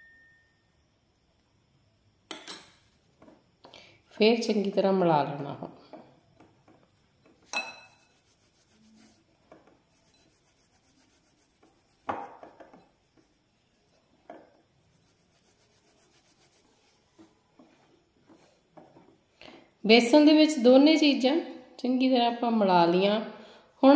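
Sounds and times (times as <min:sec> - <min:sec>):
hands rubbing flour: 0:07.7 - 0:14.1, 0:14.8 - 0:18.6.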